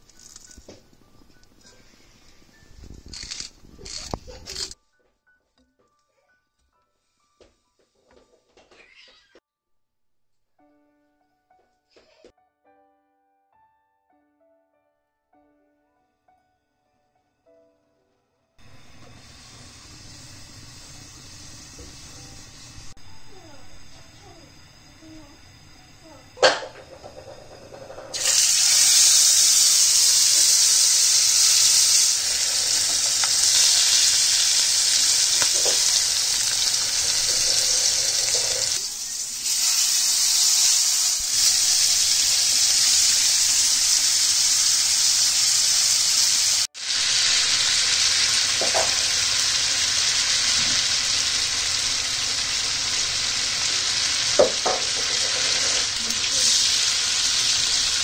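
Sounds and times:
steak sizzling in pan: 18.6s - 58.0s.

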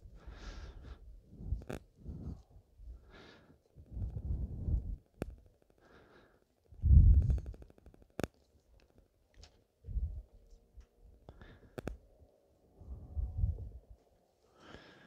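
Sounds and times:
wind buffeting microphone: 3.8s - 5.0s, 6.7s - 7.6s, 9.8s - 10.3s, 12.8s - 13.8s.

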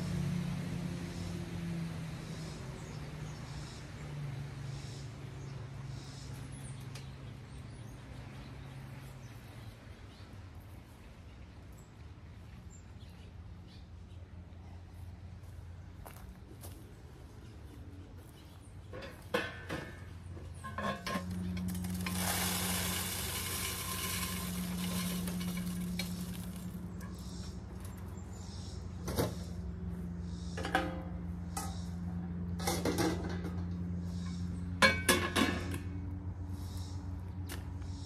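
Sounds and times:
low steady hum: 9.8s - 28.9s
bird seed rattling and pouring: 21.4s - 26.9s.

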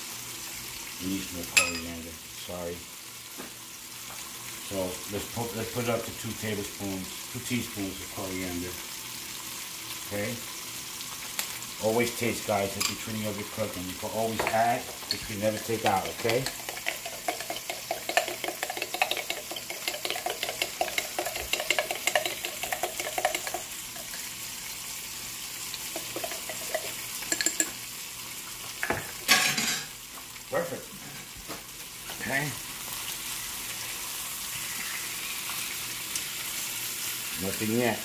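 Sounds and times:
chicken sizzling in a pan: 0.0s - 38.0s
spoon clinking against glass jar: 1.6s - 1.9s, 15.0s - 24.3s, 26.0s - 27.8s.

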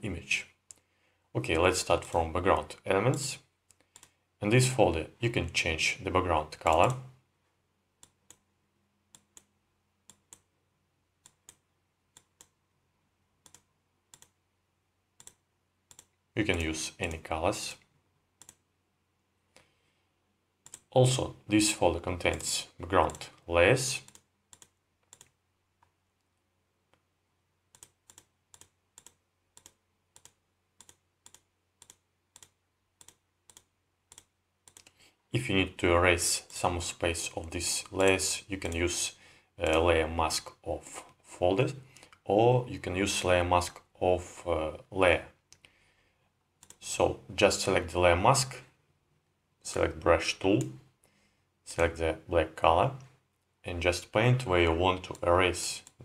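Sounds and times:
computer mouse clicks: 3.1s - 4.2s, 8.0s - 8.5s, 9.1s - 10.5s, 11.2s - 12.6s, 13.4s - 14.4s, 15.2s - 17.2s, 17.8s - 18.6s, 20.6s - 20.9s, 22.2s - 23.4s, 24.0s - 26.3s, 27.7s - 35.1s, 46.6s - 46.8s.

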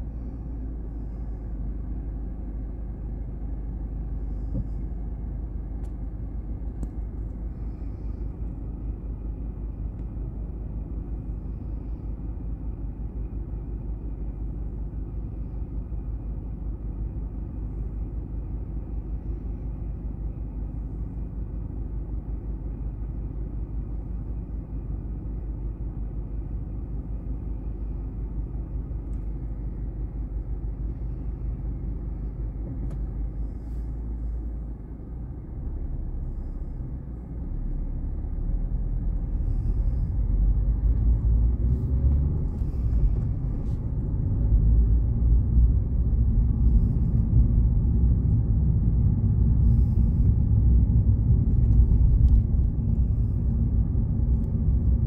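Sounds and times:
car cabin rumble: 0.0s - 16.0s, 27.0s - 55.0s.

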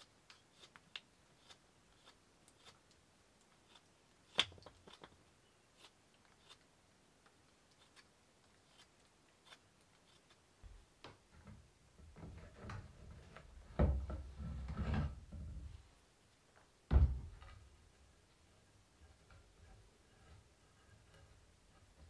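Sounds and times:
low thumps: 16.9s - 17.6s.

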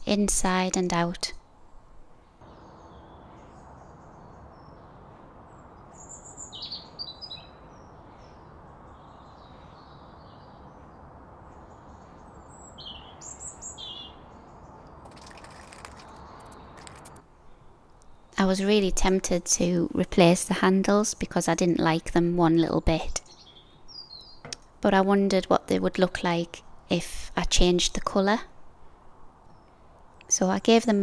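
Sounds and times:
birds chirping: 2.2s - 19.6s.

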